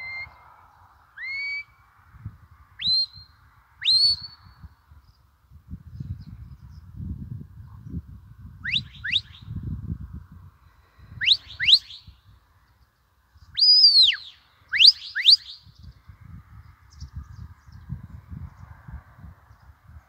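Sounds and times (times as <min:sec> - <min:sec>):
wind rumble on microphone: 0:00.0 - 0:20.0
shepherd's whistles: 0:01.2 - 0:01.7, 0:02.8 - 0:04.5, 0:08.6 - 0:09.5, 0:11.2 - 0:12.1, 0:13.6 - 0:15.6.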